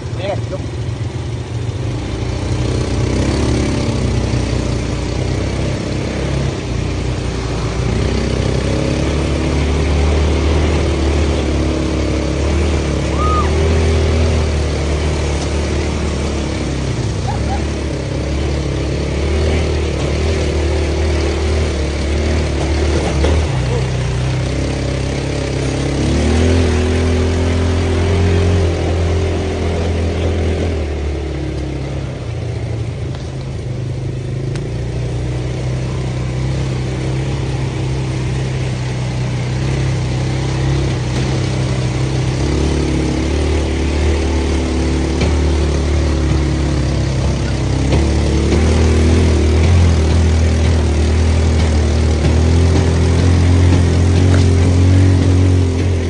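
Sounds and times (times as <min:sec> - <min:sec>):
quad bike engine running: 0:00.0 - 0:56.0.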